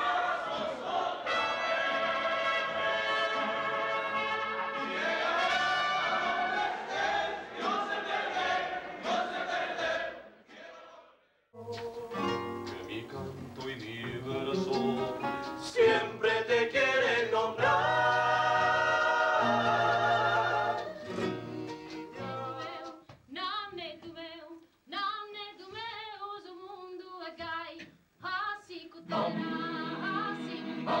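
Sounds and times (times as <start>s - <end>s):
male group singing in harmony: 0.0s - 21.5s, 29.1s - 31.0s
acoustic guitars: 11.6s - 23.1s
solo voice singing with vibrato: 14.2s - 21.5s, 22.1s - 31.0s.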